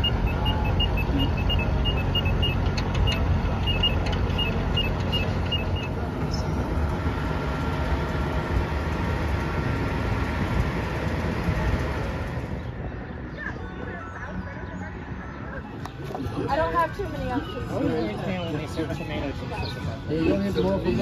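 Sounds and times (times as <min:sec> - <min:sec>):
pedestrian crossing signal beeping: 0:00.0 - 0:06.0
road traffic passing: 0:00.0 - 0:21.0.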